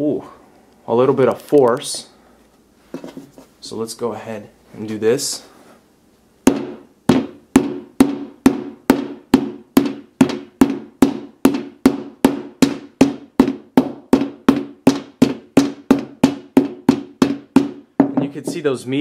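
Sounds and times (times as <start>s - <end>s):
hammer striking glass screen: 6.5s - 18.4s.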